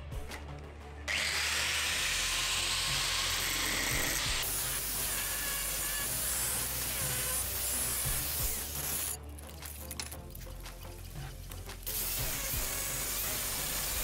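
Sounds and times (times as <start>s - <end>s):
angle grinder grinding metal: 1.1s - 9.2s, 11.9s - 14.0s.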